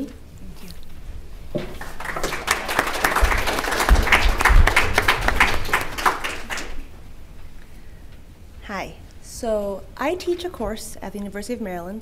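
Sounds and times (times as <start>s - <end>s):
audience applauding: 1.6s - 6.9s.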